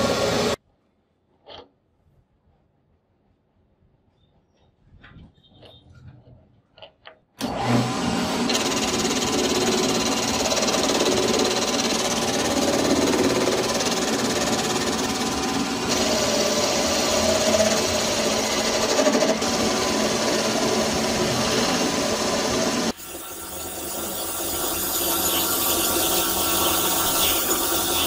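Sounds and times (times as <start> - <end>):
metal lathe cutting: 0.0 - 0.6, 7.4 - 28.0.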